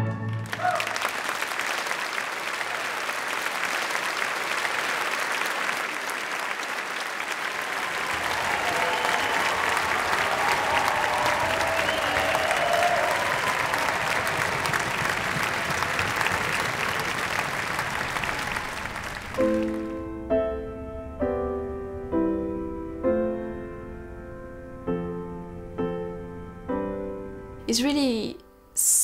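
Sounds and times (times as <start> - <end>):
audience applauding: 0.0 - 20.2
slow piano chords: 19.1 - 27.8.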